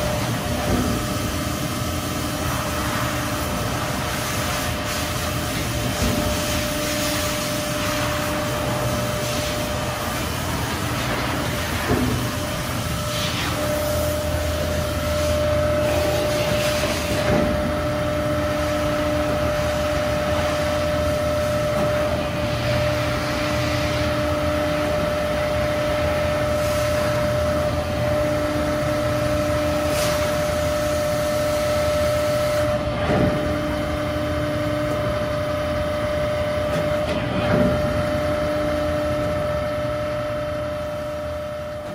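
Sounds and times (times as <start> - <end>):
hydraulic pump humming: 0.0 - 41.9.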